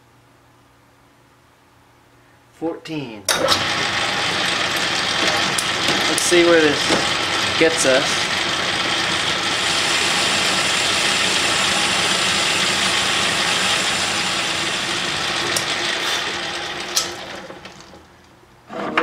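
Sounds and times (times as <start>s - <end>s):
metal lathe machining: 3.4s - 18.0s.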